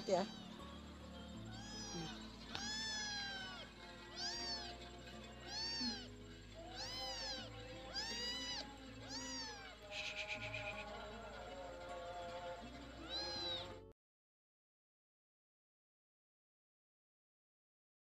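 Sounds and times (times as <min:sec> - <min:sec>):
kittens meowing: 0:00.0 - 0:00.8, 0:01.4 - 0:11.4, 0:12.8 - 0:13.8
rapid buzzing rattle: 0:00.0 - 0:13.7
background music: 0:00.0 - 0:13.9.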